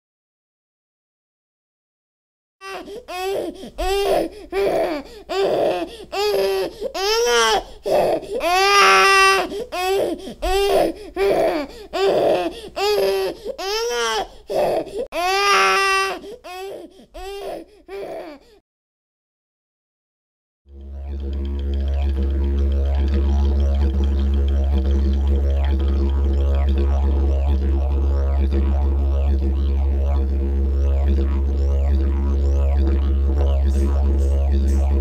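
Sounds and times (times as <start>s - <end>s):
infant crying: 2.6s - 18.6s.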